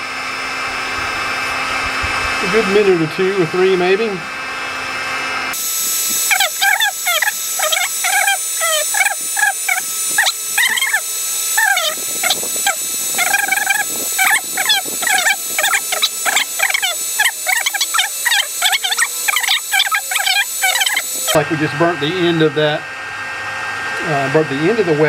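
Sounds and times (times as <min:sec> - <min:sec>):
heat gun hissing: 0:05.5 - 0:21.4
small birds chirping: 0:06.2 - 0:21.4.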